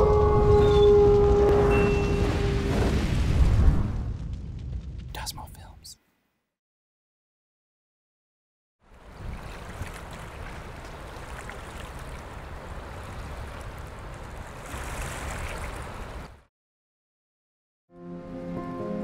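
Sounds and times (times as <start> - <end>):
deep rumble: 0.0 - 5.2.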